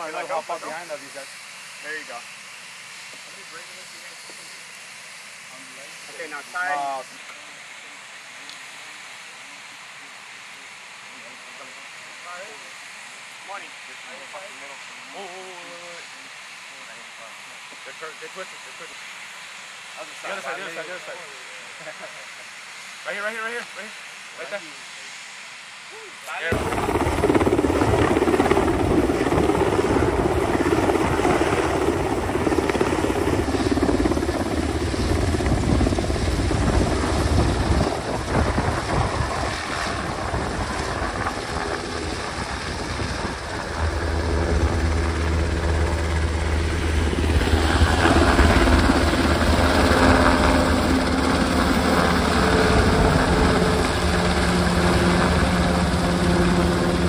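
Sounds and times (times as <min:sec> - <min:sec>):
helicopter rotor beating: 0:26.5 - 0:57.0
steady engine hum: 0:26.5 - 0:57.0.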